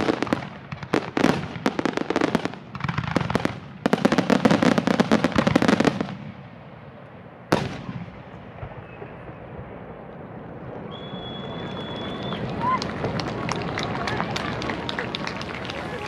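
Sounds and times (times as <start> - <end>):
fireworks launches and bangs: 0.0 - 6.4, 7.5 - 10.0
loud echoing firework bang: 7.5 - 9.9.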